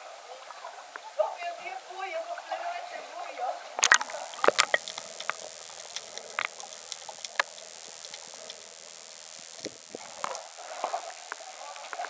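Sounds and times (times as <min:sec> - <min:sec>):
faint underwater clicks and crackles: 0:03.8 - 0:12.0
thin high whine: 0:03.8 - 0:12.0.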